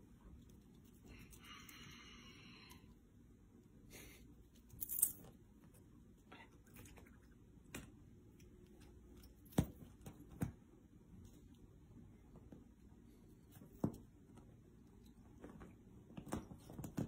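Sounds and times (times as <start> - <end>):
soft taps and rustles: 8.6 - 11.6, 12.2 - 17.0.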